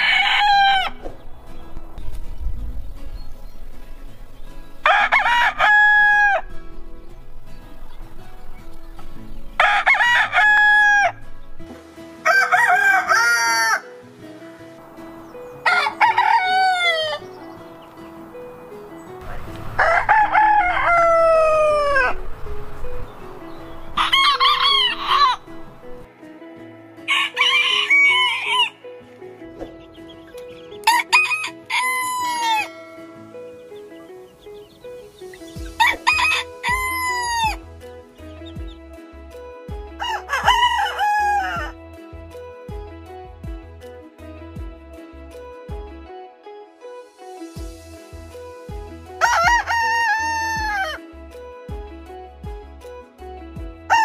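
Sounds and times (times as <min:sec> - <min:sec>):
rooster crowing: 0:00.0 - 0:01.0, 0:04.8 - 0:06.5, 0:09.6 - 0:11.2, 0:12.2 - 0:13.9, 0:15.6 - 0:17.2, 0:19.7 - 0:22.2, 0:24.0 - 0:25.6, 0:27.1 - 0:28.8, 0:30.9 - 0:32.8, 0:35.8 - 0:37.6, 0:40.0 - 0:41.8, 0:49.2 - 0:51.0.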